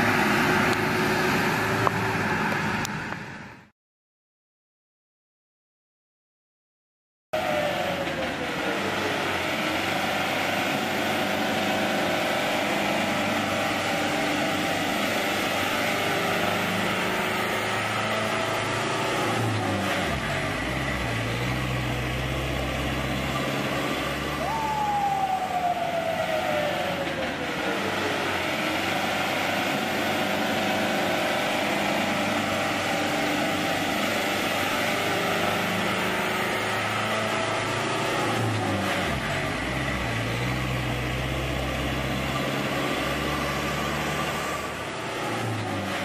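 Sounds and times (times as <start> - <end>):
truck engine running: 7.5 - 46.0
whine falling in pitch: 24.4 - 26.8.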